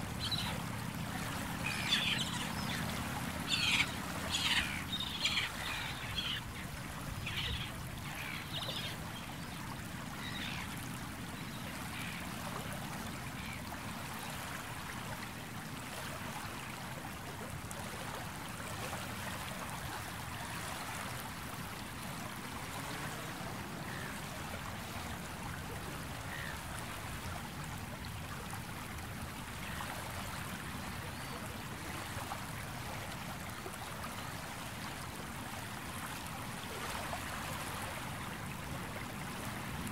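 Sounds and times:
waves lapping on shore: 0.0s - 39.9s
bird calls: 0.2s - 9.0s.

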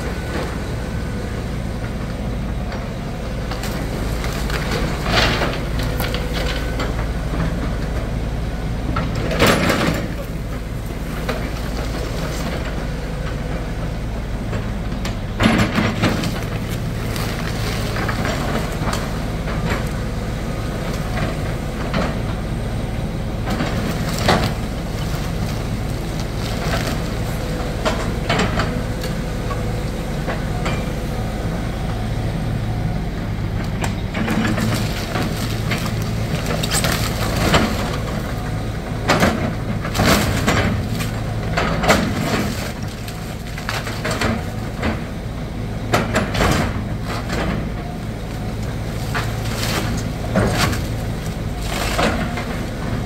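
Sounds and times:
diesel engine running: 0.0s - 53.0s
falling debris: 23.5s - 29.1s, 34.2s - 45.0s.

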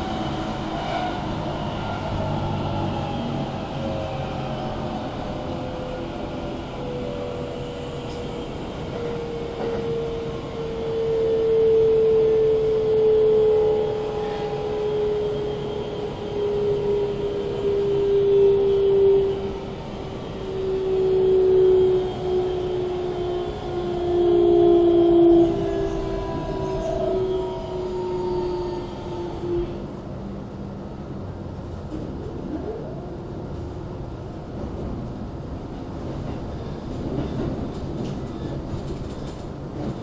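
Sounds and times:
wheels running on rail: 33.4s - 40.0s.

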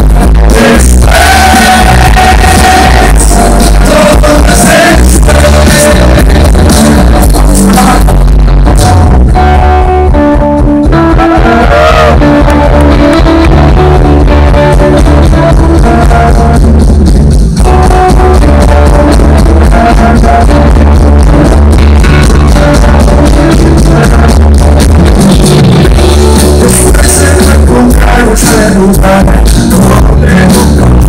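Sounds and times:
rock band playing live: 0.0s - 31.0s.

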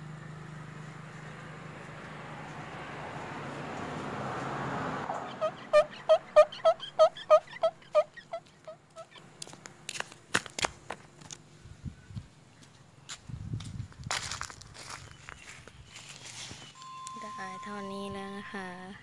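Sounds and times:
vehicle passing: 0.0s - 9.9s.

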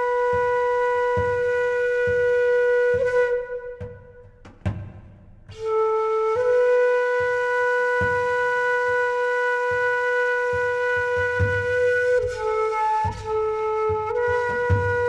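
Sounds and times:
flute sustained notes: 0.0s - 4.3s, 5.5s - 15.0s
soft low drum hits: 1.1s - 5.7s.

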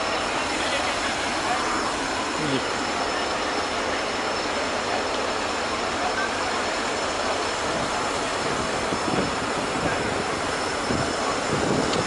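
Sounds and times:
crane engine roaring: 0.0s - 12.0s.

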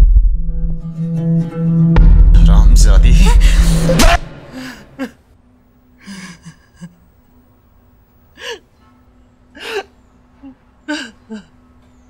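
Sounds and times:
woman sobbing: 3.1s - 5.3s, 6.0s - 7.2s, 8.3s - 8.7s, 9.6s - 11.6s.

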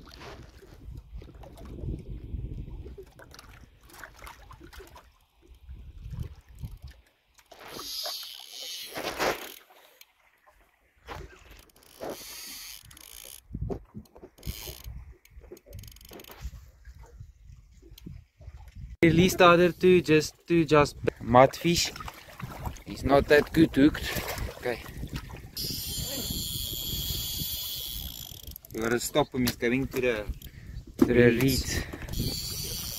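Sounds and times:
fishing reel clicking and rattling: 7.7s - 9.7s, 11.5s - 13.5s, 14.4s - 15.0s, 15.6s - 16.4s, 25.6s - 29.0s, 32.1s - 32.9s.

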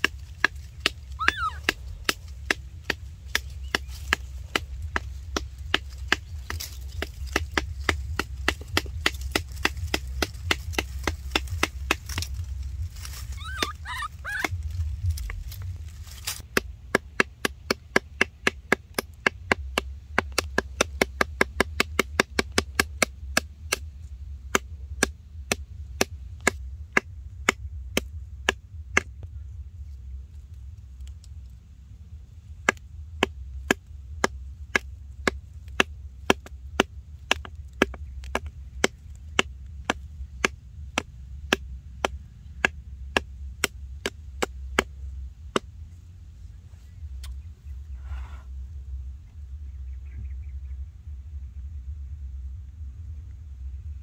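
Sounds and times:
blade chopping wooden stick: 0.0s - 12.4s, 16.2s - 29.2s, 32.6s - 45.7s.

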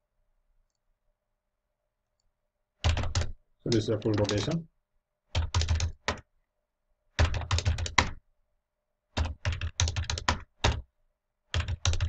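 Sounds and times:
keyboard typing: 2.8s - 4.6s, 5.4s - 6.2s, 7.2s - 8.2s, 9.2s - 10.8s, 11.5s - 12.0s.

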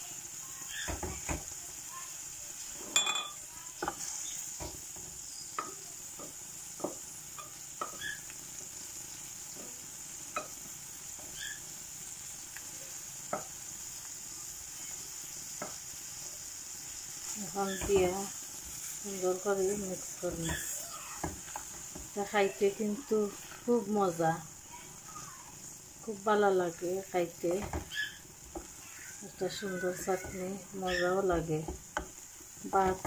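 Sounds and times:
faint sizzle: 0.0s - 33.0s
wooden spoon knocking on pan: 0.8s - 1.6s, 3.0s - 8.2s, 13.3s - 13.6s, 15.6s - 15.8s, 17.7s - 18.3s, 19.6s - 22.2s, 27.4s - 33.0s.

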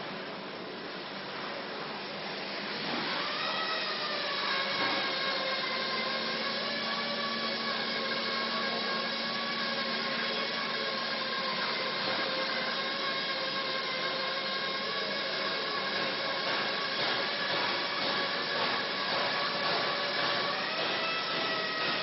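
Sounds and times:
hiss: 14.6s - 22.0s.

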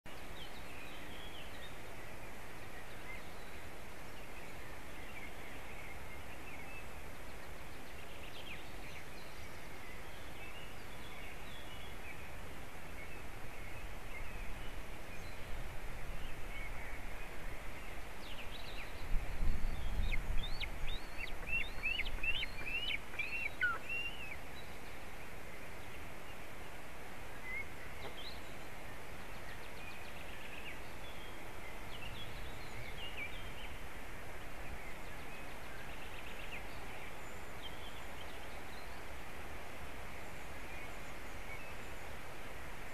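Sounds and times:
outdoor background hiss: 0.1s - 42.9s.

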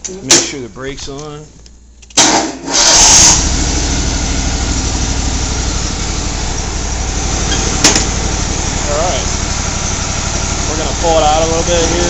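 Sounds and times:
lawn mower engine running: 2.7s - 12.0s.

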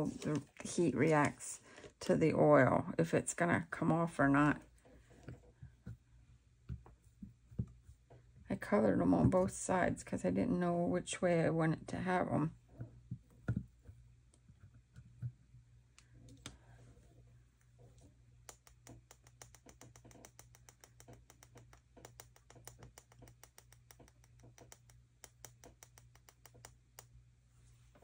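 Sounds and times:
paper cut-outs clicking and tapping: 18.5s - 26.8s.

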